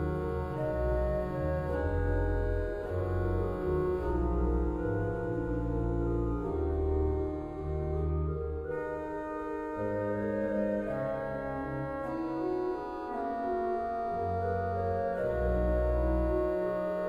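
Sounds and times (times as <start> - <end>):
organ playing slow chords: 0.0 - 17.0.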